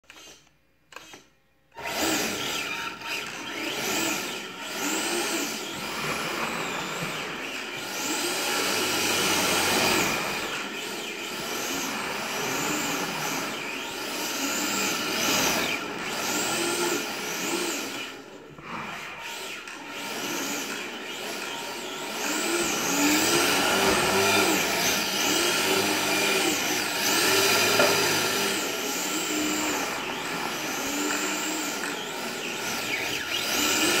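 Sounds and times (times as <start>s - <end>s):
electric motor whining: 1.8s - 34.0s.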